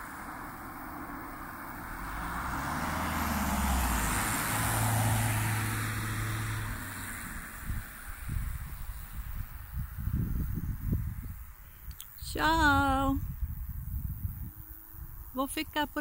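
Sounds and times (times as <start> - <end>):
car driving past: 0.0 - 9.3.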